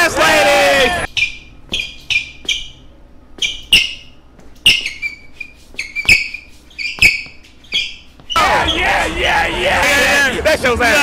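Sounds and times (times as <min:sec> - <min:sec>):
high-pitched squeaks: 0:01.1 - 0:09.2.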